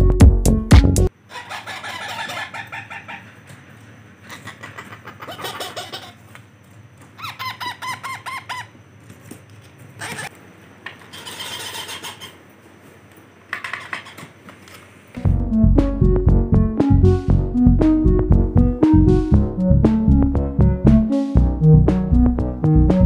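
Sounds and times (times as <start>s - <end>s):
parakeet chicks begging calls: 1.3s - 3.5s, 4.3s - 6.2s, 7.2s - 8.8s, 10.0s - 10.3s, 11.1s - 12.4s.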